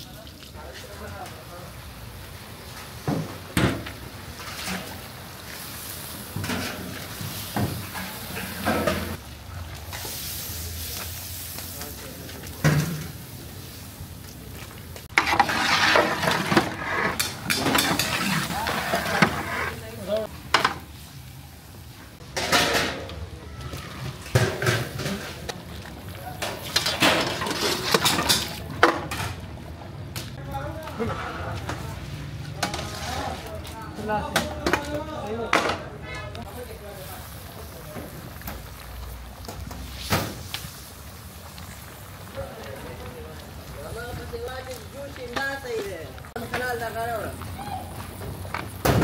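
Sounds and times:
steady background noise: 0:00.0 - 0:49.0
metal pots and ladles clanking: 0:04.4 - 0:05.2, 0:06.3 - 0:09.2, 0:15.1 - 0:19.8, 0:22.2 - 0:23.2, 0:24.2 - 0:29.4.

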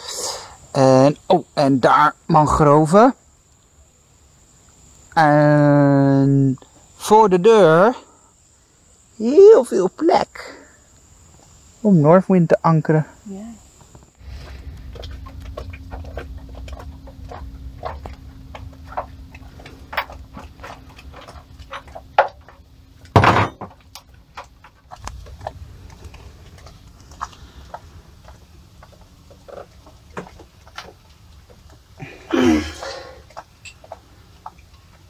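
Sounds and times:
low hum: 0:14.0 - 0:35.0.

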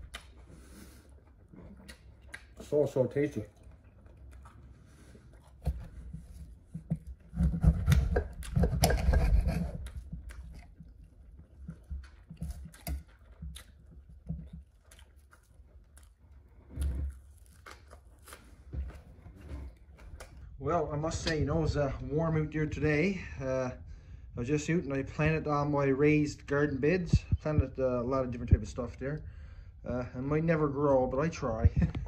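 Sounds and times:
chewing: 0:00.0 - 0:20.5.

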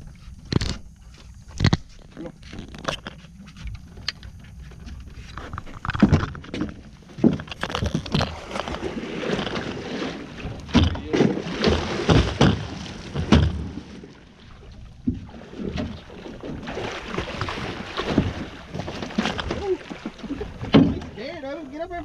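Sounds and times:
alligator splashing in water: 0:07.6 - 0:21.2
knocks on aluminum boat: 0:10.7 - 0:13.8.

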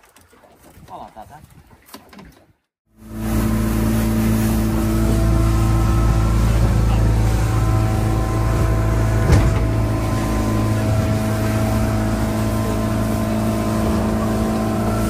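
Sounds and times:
boat engine running: 0:02.9 - 0:15.0.

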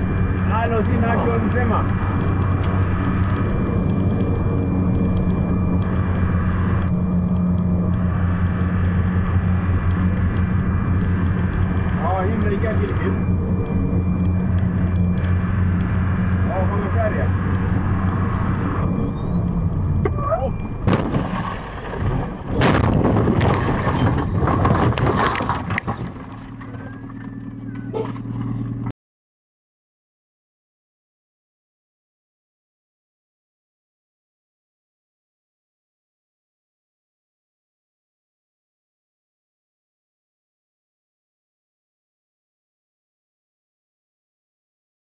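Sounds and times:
road noise: 0:00.0 - 0:28.9
truck engine droning: 0:00.0 - 0:28.9
truck crash impact: 0:20.8 - 0:27.0
crunching rattling and scraping: 0:20.8 - 0:28.9.

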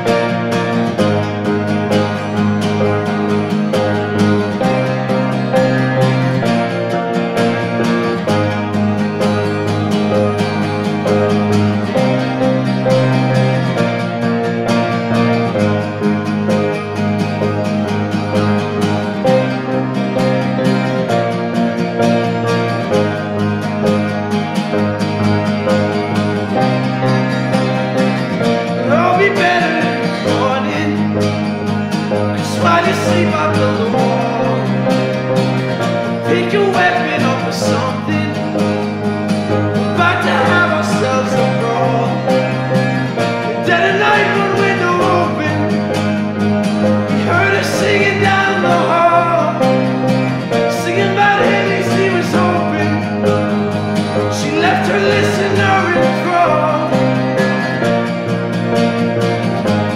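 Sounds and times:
acoustic guitar: 0:00.0 - 0:59.9
grand piano: 0:00.0 - 0:59.9
wordless vocal line: 0:28.8 - 0:31.3, 0:32.2 - 0:35.1, 0:36.1 - 0:38.5, 0:39.9 - 0:42.7, 0:43.5 - 0:45.8, 0:47.1 - 0:53.2, 0:54.2 - 0:57.3.

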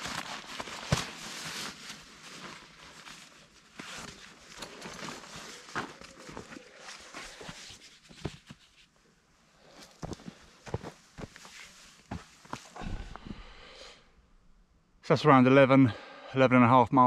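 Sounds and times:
fabric and strap rustling: 0:00.0 - 0:09.0
footsteps on woodland floor: 0:09.7 - 0:13.6.

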